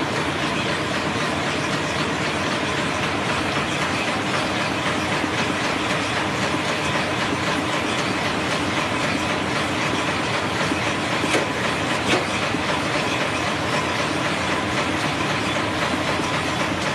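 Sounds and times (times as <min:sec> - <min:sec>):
loud machine clicks: 0:00.1 - 0:16.9.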